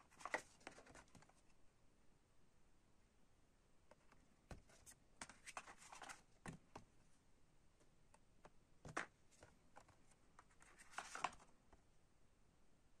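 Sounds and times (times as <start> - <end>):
cards being handled and slid: 0.0 - 1.5, 3.9 - 6.6, 8.9 - 11.5.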